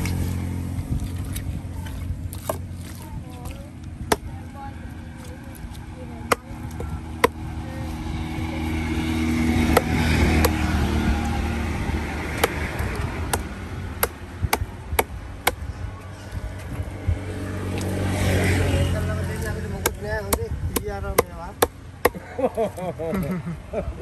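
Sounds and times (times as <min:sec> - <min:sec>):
low engine hum: 0:00.0 - 0:24.0
knife chopping fish on wood: 0:04.1 - 0:04.3, 0:06.3 - 0:07.4, 0:09.6 - 0:10.6, 0:12.4 - 0:15.6, 0:19.8 - 0:22.2.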